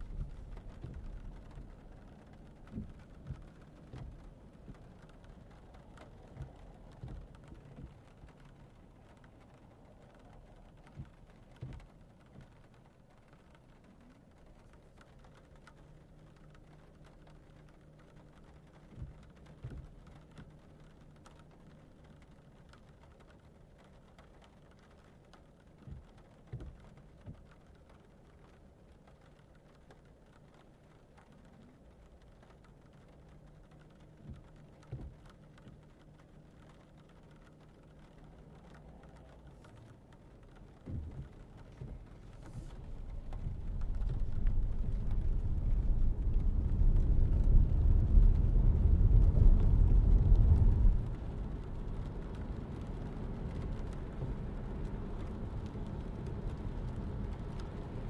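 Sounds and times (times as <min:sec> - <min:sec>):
low car cabin hum: 0:00.0 - 0:58.0.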